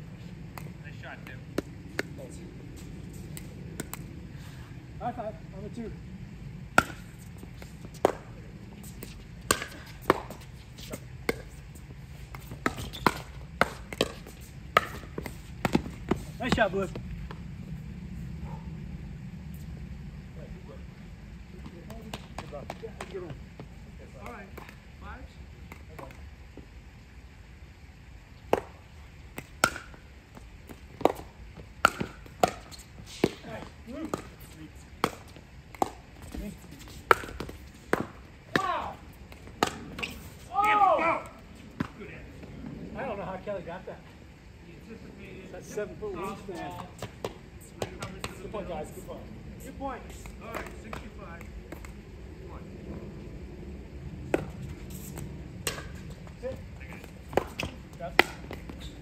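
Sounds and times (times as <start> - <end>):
paddles hitting plastic ball: 9.0 - 11.5, 12.3 - 16.1, 29.4 - 40.8, 56.8 - 59.0.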